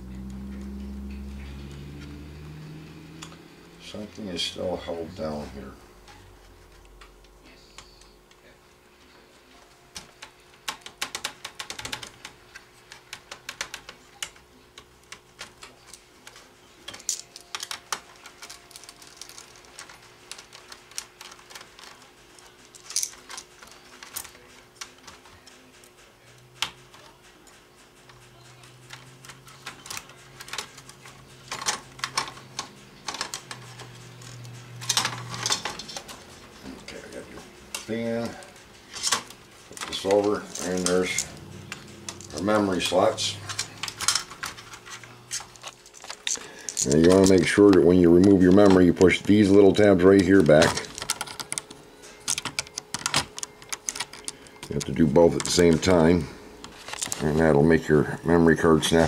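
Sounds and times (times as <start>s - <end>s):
plastic laptop parts clicking: 10.0s - 25.3s, 50.4s - 55.9s.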